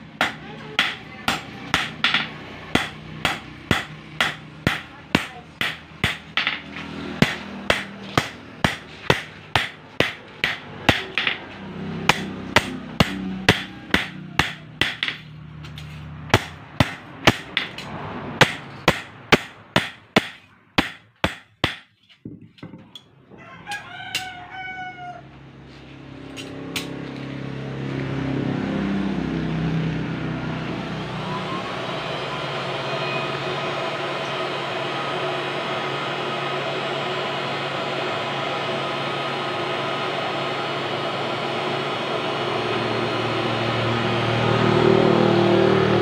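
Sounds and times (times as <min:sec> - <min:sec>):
hammer striking steel on anvil: 0:00.1 - 0:22.0
rooster crowing: 0:13.2 - 0:14.8, 0:23.2 - 0:25.4.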